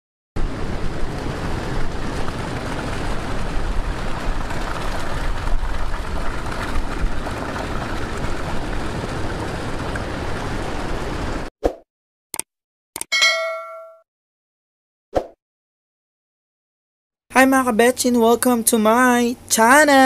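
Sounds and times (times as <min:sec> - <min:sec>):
rushing water: 0:00.4 - 0:11.5
wind: 0:00.4 - 0:11.5
deep fluctuating rumble: 0:00.5 - 0:11.5.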